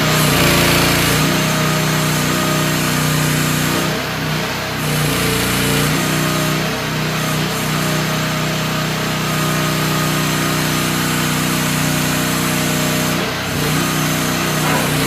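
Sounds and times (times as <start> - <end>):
excavator engine running: 13.2 - 15.0.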